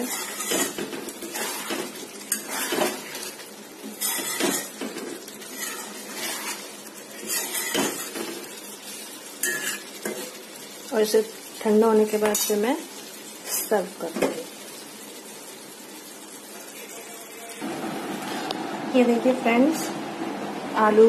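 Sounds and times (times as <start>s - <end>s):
metal spoon scraping a metal pan: 0.0s - 8.6s, 9.4s - 10.3s.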